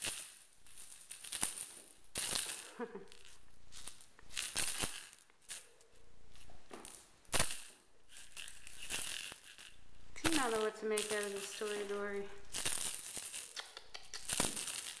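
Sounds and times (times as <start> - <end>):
cat toy rattling and swishing: 7.3 - 15.0.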